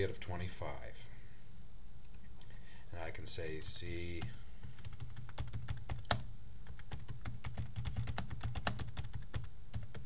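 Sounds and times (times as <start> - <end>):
computer keyboard typing: 4.2 - 10.0.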